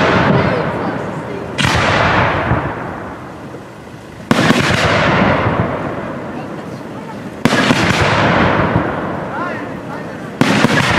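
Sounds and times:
echoing rumble: 0.0s - 10.9s
firework bursting: 0.0s - 10.9s
quick firework cracks: 1.5s - 3.4s, 4.2s - 10.9s.

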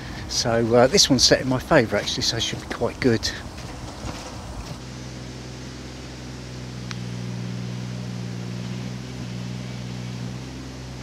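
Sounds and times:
low engine hum: 0.0s - 11.0s
light click: 6.8s - 7.0s.

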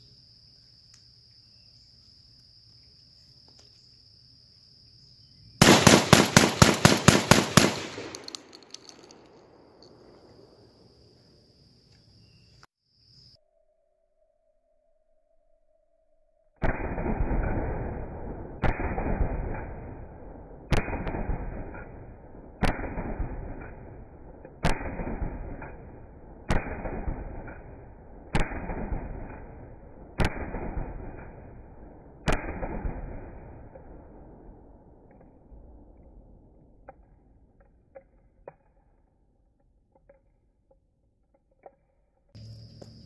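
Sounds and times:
shotgun shots: 5.6s - 9.2s, 16.6s - 34.6s.

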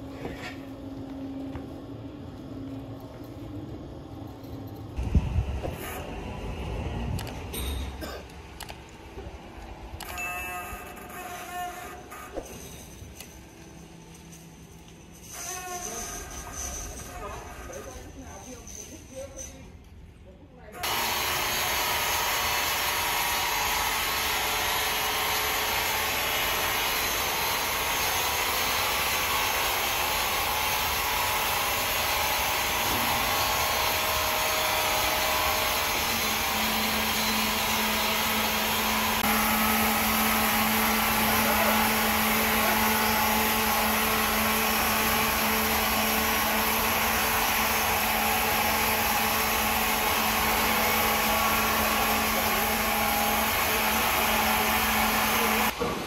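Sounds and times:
powered wood saw running: 20.8s - 56.0s.

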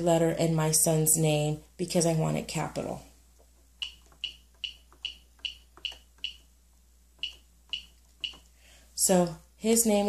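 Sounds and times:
keypad button clicks with beeps: 3.8s - 6.5s, 7.2s - 8.5s.

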